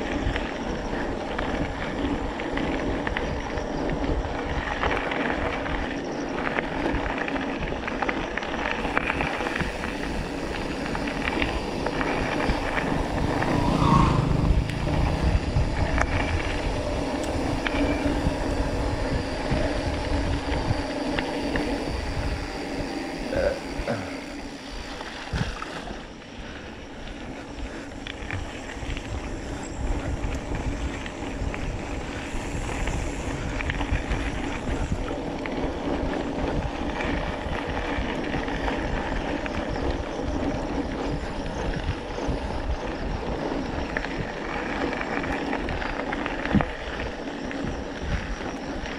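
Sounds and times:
bike rattling over bumps: 0:00.0 - 0:48.9
low rumble: 0:08.8 - 0:24.9.

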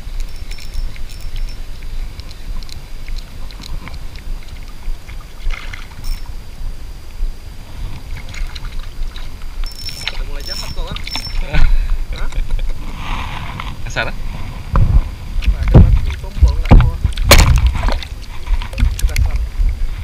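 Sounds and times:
fish splashing: 0:00.0 - 0:06.6
water sloshing: 0:00.0 - 0:20.0
wind buffeting: 0:00.0 - 0:20.0
fishing reel clicking: 0:00.1 - 0:03.7, 0:09.6 - 0:11.5.

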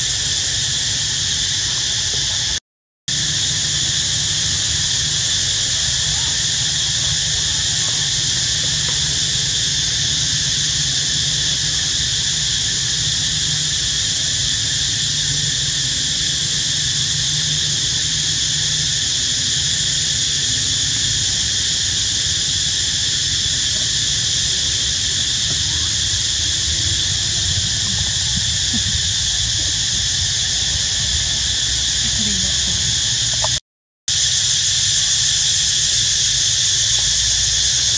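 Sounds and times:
high-pitched insect chorus: 0:00.0 - 0:37.9
low steady rumble: 0:24.1 - 0:33.6.

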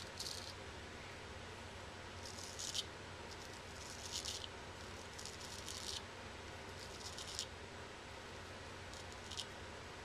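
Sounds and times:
razor scraping stubble: 0:02.2 - 0:06.0.

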